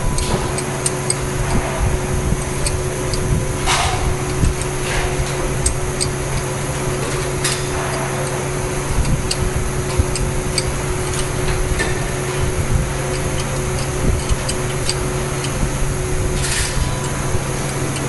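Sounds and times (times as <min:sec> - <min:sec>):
mechanical hum: 0:00.0 - 0:18.0
spanner scraping metal: 0:00.0 - 0:18.0.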